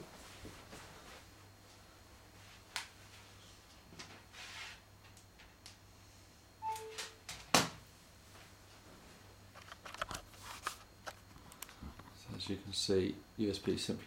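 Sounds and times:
two-note electronic beep: 6.6 - 7.2
phone handling clicks and rustles: 9.6 - 12.6.

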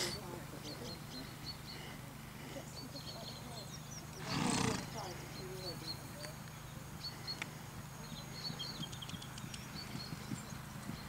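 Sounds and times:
small birds chirping: 0.0 - 11.0
horse hoofbeats on grass: 8.1 - 11.0.

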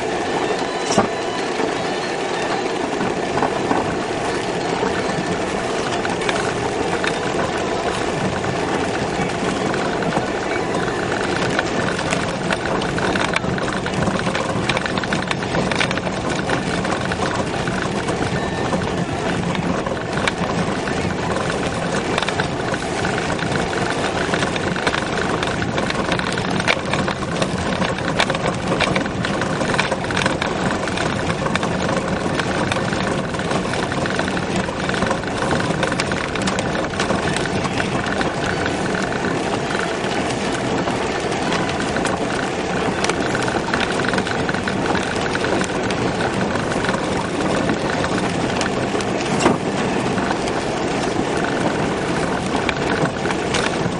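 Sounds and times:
car engine and road noise: 0.0 - 53.9
knocks and rattles: 2.9 - 53.9.

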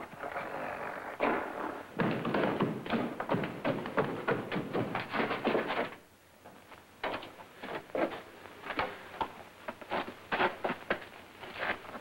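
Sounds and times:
footsteps running down wooden stairs: 1.9 - 6.0.

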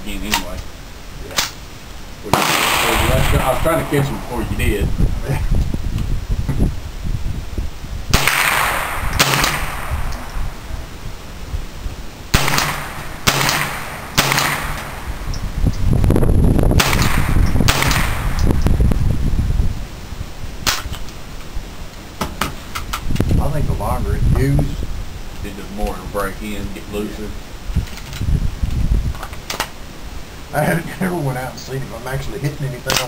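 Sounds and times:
rifle shots cracking: 2.3 - 4.5, 8.1 - 10.4, 12.3 - 15.3, 16.8 - 18.5.

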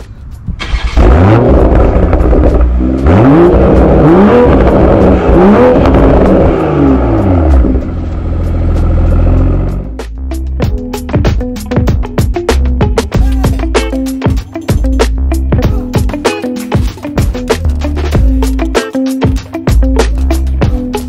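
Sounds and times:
car engine revving: 0.6 - 10.0.

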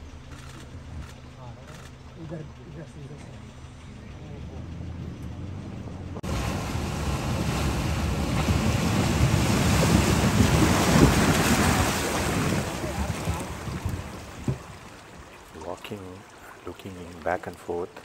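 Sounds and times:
wind buffeting microphone: 4.6 - 15.4
river water over stones: 6.2 - 18.0.

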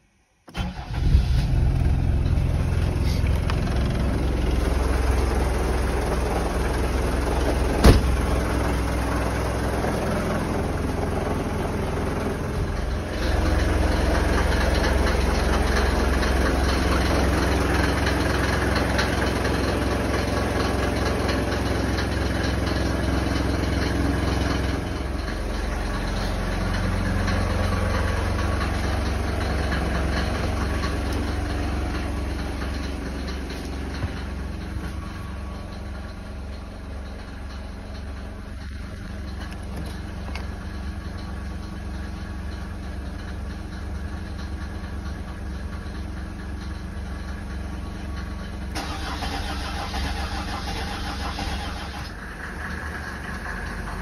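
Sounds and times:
car engine starting and idling: 0.4 - 54.0
sharp knock: 7.8 - 8.2.

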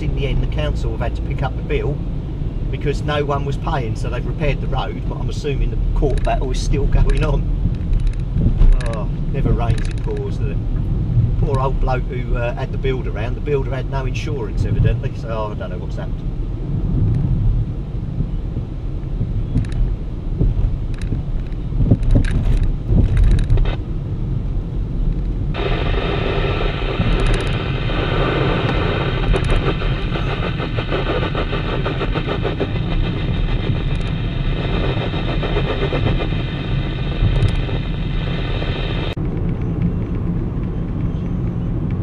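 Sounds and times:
car engine and road noise: 0.0 - 42.0
light clicks: 19.6 - 19.8
radio static hiss: 23.4 - 23.8, 25.6 - 39.2.

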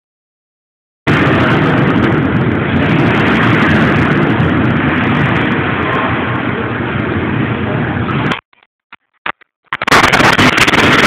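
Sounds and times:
ventilation roar: 1.1 - 8.4, 9.8 - 11.0.

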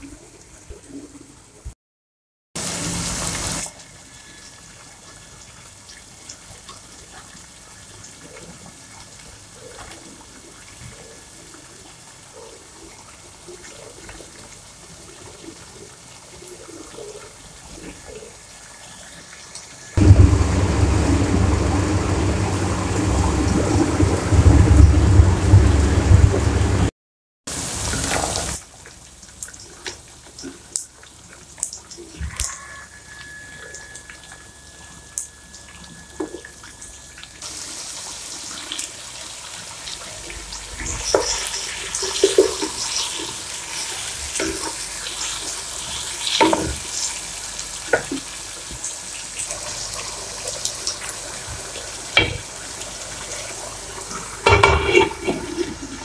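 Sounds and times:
deep rumble: 20.0 - 26.9
chicken sizzling in oil: 27.5 - 56.0.

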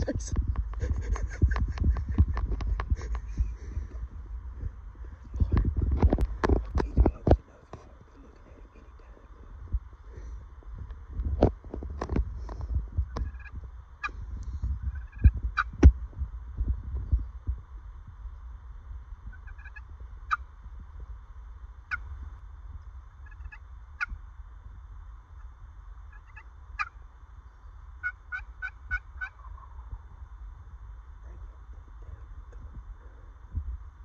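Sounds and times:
steady low rumble: 0.0 - 34.0
wild turkey calling: 13.2 - 14.2, 14.9 - 15.7, 19.3 - 20.5, 21.9 - 22.1, 23.2 - 24.2, 26.1 - 30.0.

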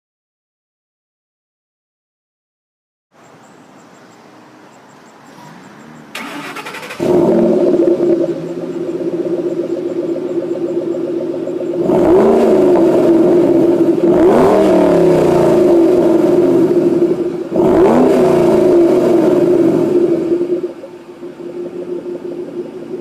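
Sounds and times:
car exhaust idling and revving: 5.6 - 23.0.

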